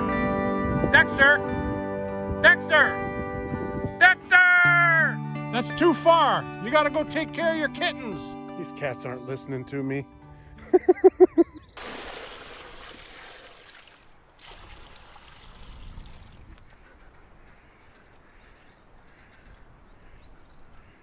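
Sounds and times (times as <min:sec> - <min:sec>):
water splashing into plastic tub: 0:11.8 - 0:16.4.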